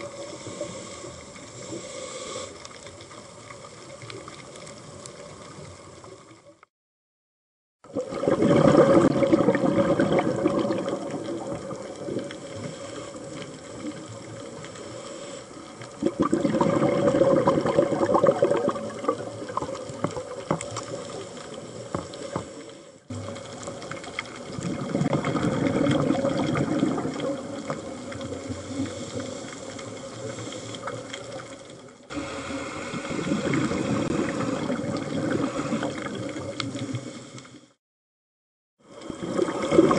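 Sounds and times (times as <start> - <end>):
underwater exhaled bubbles: 7.8 - 37.8, 38.8 - 39.9.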